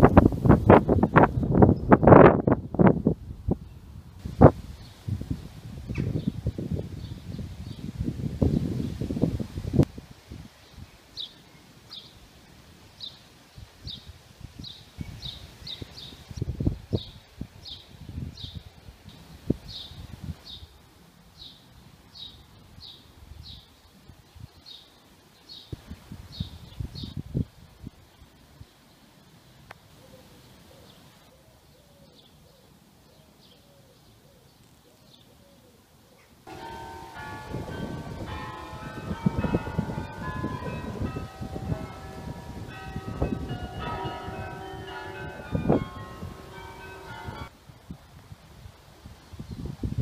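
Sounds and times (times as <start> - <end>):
wind buffeting microphone: 0.0 - 11.0, 13.6 - 20.6, 25.7 - 28.0, 36.5 - 50.0
church bells ringing: 36.5 - 47.5.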